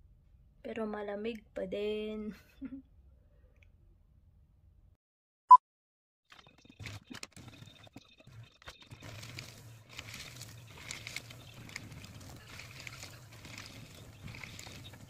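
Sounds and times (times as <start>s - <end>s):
paper handling clicks: 8.6s - 15.0s
paper being shredded: 8.8s - 15.0s
paper shredder motor hum: 9.0s - 15.0s.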